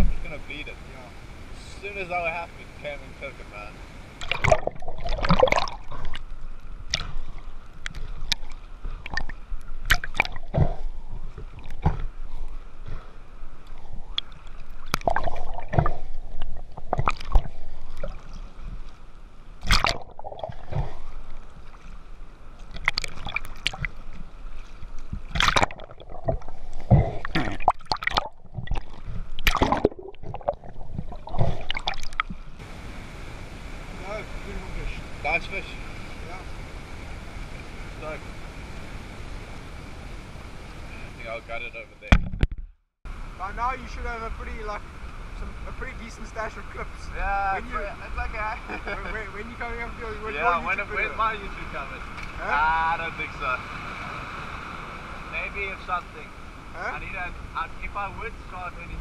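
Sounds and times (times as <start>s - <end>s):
water sloshing and gurgling: 3.9s - 33.1s
splashes and bubbling: 4.2s - 32.7s.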